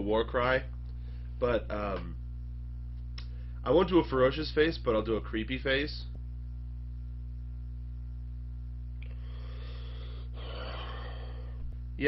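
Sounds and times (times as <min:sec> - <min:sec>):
low electrical hum: 0:00.0 - 0:12.0
man breathing in: 0:09.0 - 0:11.8.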